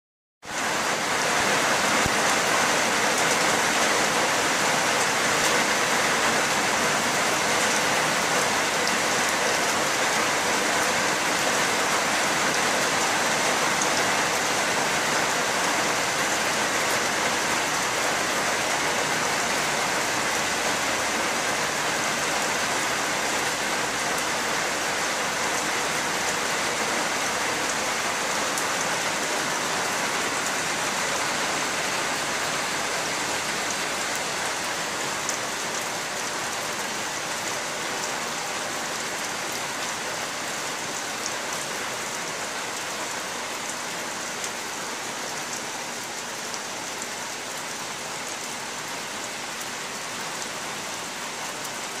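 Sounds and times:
steady rain falling: 0.4s - 52.0s.

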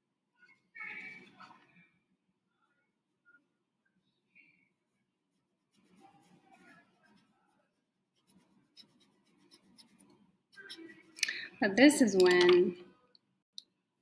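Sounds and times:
paintbrush scratching on canvas: 5.3s - 11.2s.

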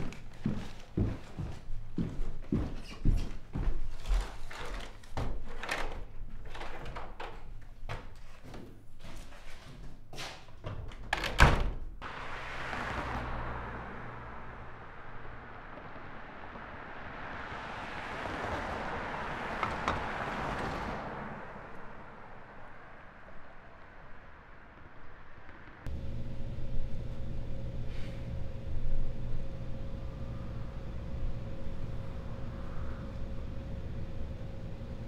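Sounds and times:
heavy door clunking shut: 10.7s - 11.9s
steady rushing noise: 12.0s - 26.0s.

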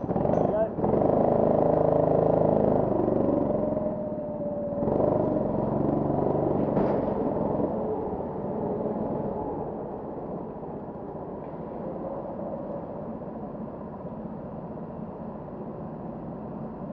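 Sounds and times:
go-kart engines idling: 0.0s - 9.6s.

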